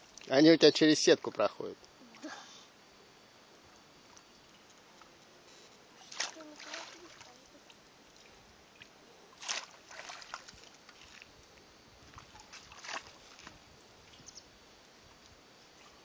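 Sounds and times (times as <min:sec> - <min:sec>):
faint outdoor hiss: 0:00.0 - 0:16.0
water splashing in puddle: 0:06.0 - 0:07.4, 0:08.8 - 0:11.3, 0:12.2 - 0:13.6.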